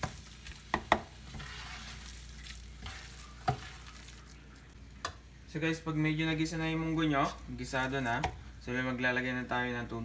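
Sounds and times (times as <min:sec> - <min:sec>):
spatula stirring and scraping: 0:00.0 - 0:04.8
soft sizzle: 0:00.0 - 0:10.0.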